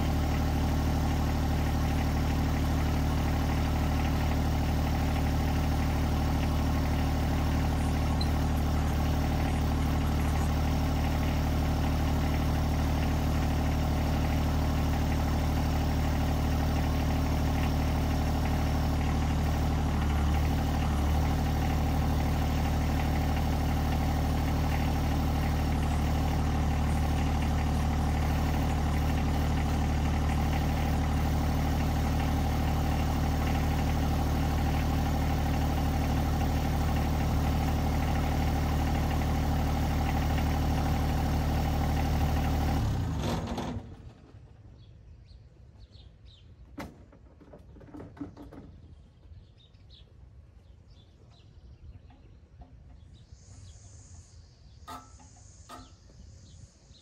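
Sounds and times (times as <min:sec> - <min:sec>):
tractor diesel engine idling: 0:00.0 - 0:44.6.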